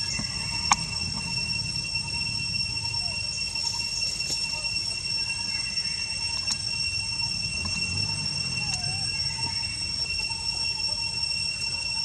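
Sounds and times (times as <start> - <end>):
high-pitched whine: 0.0 - 12.0.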